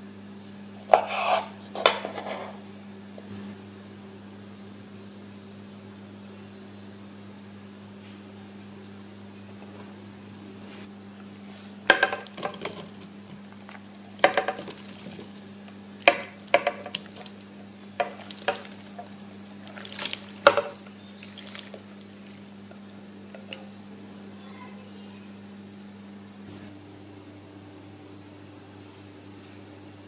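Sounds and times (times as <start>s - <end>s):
glass bowl clinking on pot: 20.4s - 21.7s.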